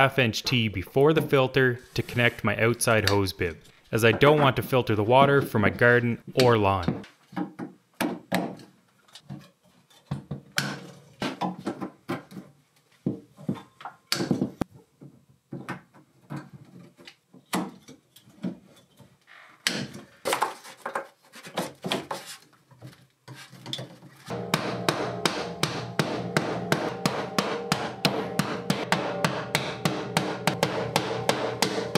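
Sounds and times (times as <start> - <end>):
pipes knocking against wooden wall: 24.3 - 31.9.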